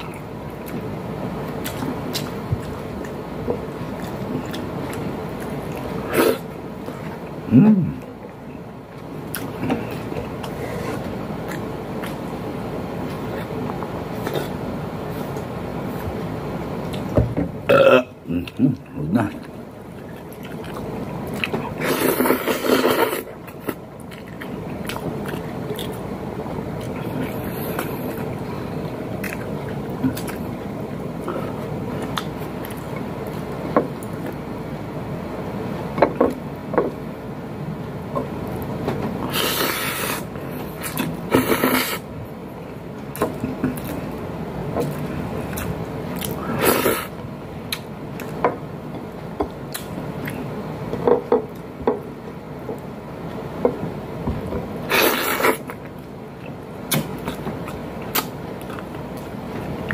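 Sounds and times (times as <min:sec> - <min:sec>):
chewing and lip smacks: 0:01.5 - 0:03.2, 0:19.3 - 0:21.7, 0:22.6 - 0:30.5, 0:56.4 - 0:59.9
slurping: 0:19.2 - 0:26.0, 0:39.2 - 0:42.1, 0:45.0 - 0:47.2, 0:54.9 - 0:55.8.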